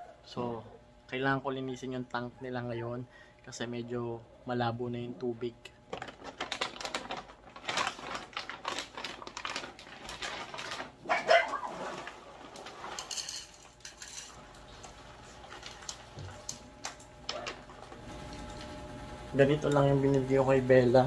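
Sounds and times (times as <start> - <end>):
plastic bag rustling: 5.9 - 18.8
dog yipping: 11.0 - 12.0
dry kibble rattling into bowl: 12.4 - 14.4.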